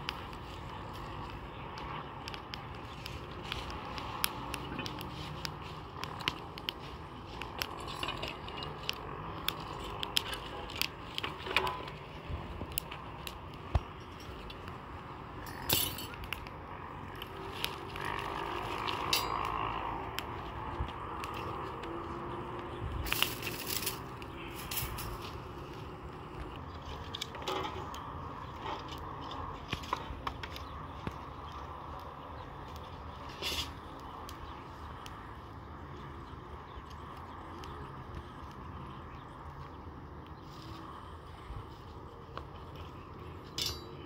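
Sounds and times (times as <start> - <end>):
fire crackling: 0.0 - 44.0
iron trivet clinking: 43.5 - 44.0.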